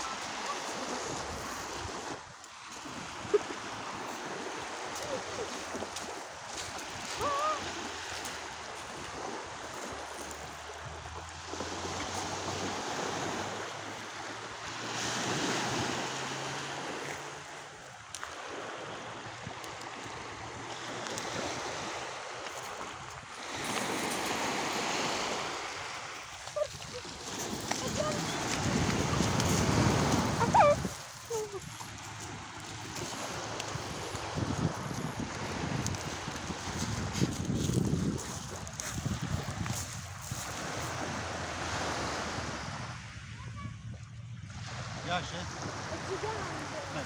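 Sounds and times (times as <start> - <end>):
waves washing over pebbles: 0.0 - 43.2, 44.6 - 47.0
wind on microphone: 22.7 - 44.9.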